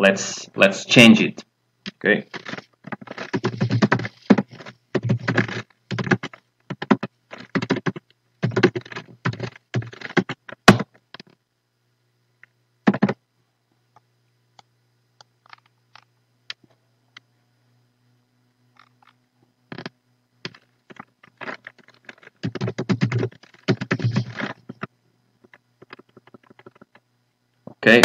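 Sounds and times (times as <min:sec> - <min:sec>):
computer keyboard typing: 0:02.3 - 0:10.8, 0:12.9 - 0:13.2, 0:20.5 - 0:24.9, 0:25.8 - 0:27.0.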